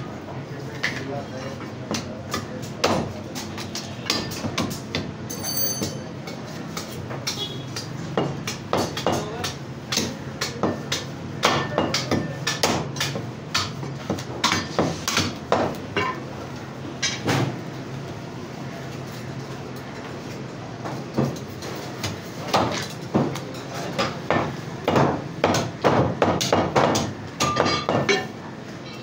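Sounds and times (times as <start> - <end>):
cleavers chopping meat and bone: 1.6 - 5.2, 5.8 - 16.2, 20.9 - 28.3
high metallic ring: 5.3 - 6.2.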